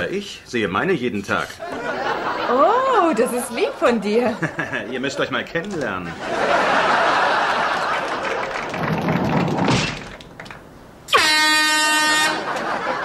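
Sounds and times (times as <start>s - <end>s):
audience laughing: 1.6s - 5.4s, 6.0s - 9.2s, 12.2s - 13.0s
loud horn blast: 11.1s - 12.6s.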